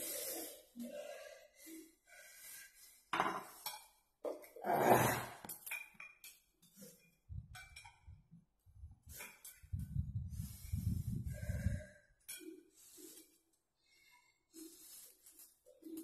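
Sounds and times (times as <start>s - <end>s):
chopsticks and plates clinking: 5.5s - 8.1s.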